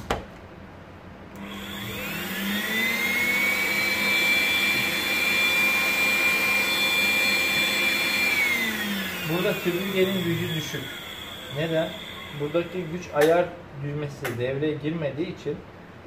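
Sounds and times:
vacuum cleaner motor whining: 1.4 - 13.2.

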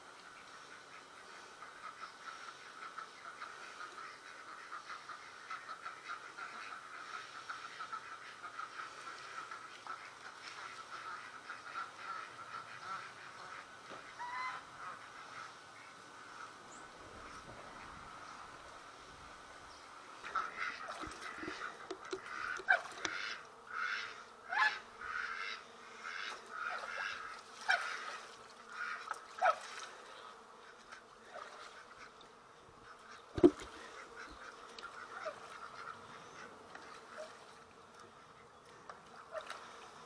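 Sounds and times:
geese honking: 0.7 - 16.6, 20.2 - 29.7.

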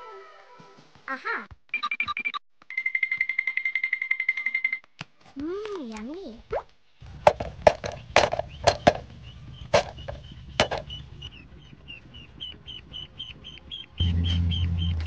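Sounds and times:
sharp knocks: 7.3 - 9.1, 9.7 - 10.9
ducklings peeping: 7.9 - 15.0.

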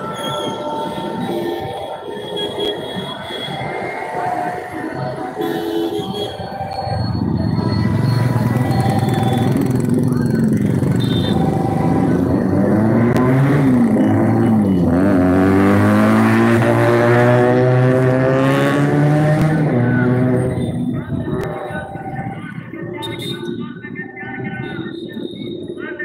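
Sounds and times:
vehicle engine revving: 8.0 - 20.6.

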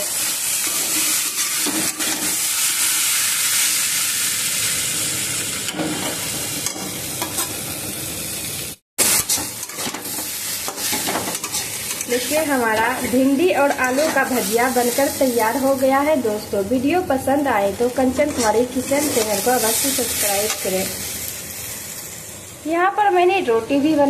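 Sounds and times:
vegetables sizzling in a pan: 0.0 - 24.0
spatula scraping and knocking pan: 9.0 - 12.2.

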